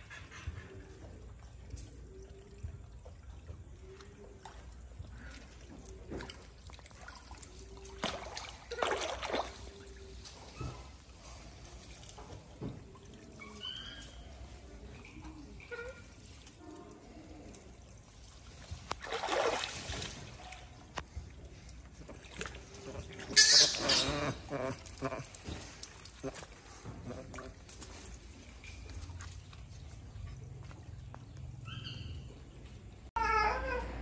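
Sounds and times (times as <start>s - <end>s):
water trickling into a pool: 0.0s - 31.4s
monkey splashing in water: 3.4s - 11.0s, 18.4s - 21.2s, 21.9s - 28.1s.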